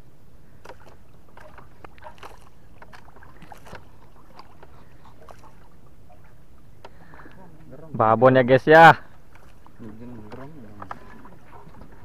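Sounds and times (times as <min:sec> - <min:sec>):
low boat rumble: 0:00.0 - 0:12.0
water splashing against hull: 0:00.0 - 0:12.0.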